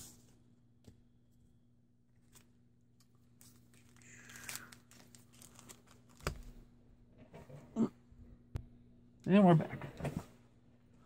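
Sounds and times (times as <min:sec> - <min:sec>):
card wrappers crinkling: 0:02.2 - 0:06.5.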